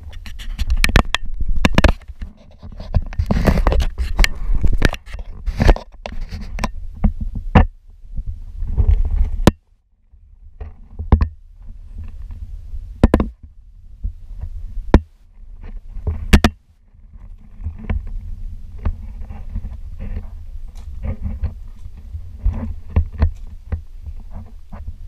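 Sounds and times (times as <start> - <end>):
camera handling rumble: 0.0 - 7.7, 15.5 - 25.0
sharp clicks and knocks: 0.0 - 7.8, 10.6 - 11.4, 13.0 - 13.5, 14.9 - 16.6, 18.8 - 24.9.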